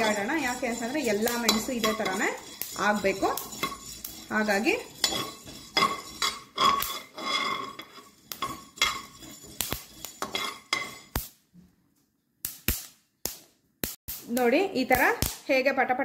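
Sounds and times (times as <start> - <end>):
peppercorns rattling against pan: 0.0 - 11.2
skimmer scraping peppercorns in pan: 0.0 - 11.3.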